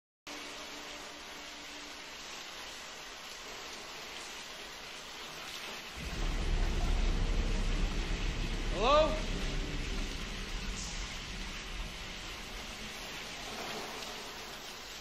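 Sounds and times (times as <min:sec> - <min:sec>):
shower water spraying: 0:00.3 - 0:15.0
deep rumble: 0:06.0 - 0:14.5.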